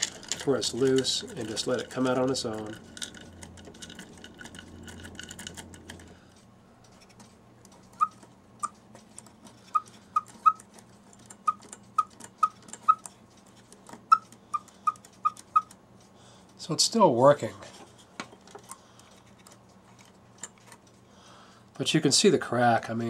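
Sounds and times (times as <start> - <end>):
weight chain clicking: 0.0 - 6.2
cuckoo clock whistle peeps: 14.9 - 15.7.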